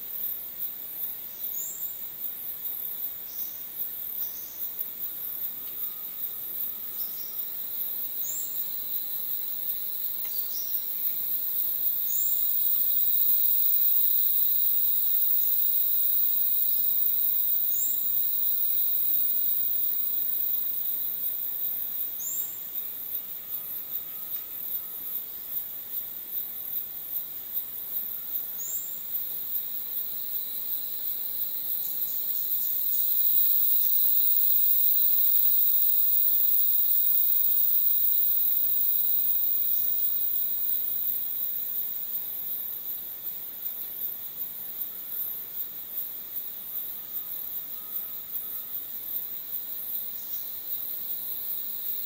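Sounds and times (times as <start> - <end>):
insects chirring: 0.0 - 52.0
faint thin whistle: 47.1 - 48.8.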